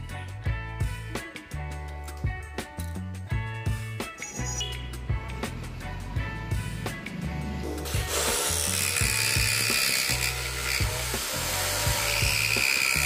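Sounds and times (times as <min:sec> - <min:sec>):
background music with beat: 0:00.0 - 0:13.0
electric jigsaw cutting wood: 0:07.8 - 0:13.0.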